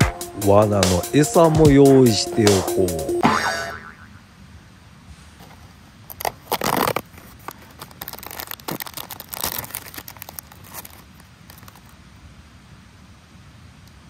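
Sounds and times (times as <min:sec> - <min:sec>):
plastic wrapper crinkling: 0:05.4 - 0:12.0
plastic wrapper tearing: 0:06.1 - 0:12.0.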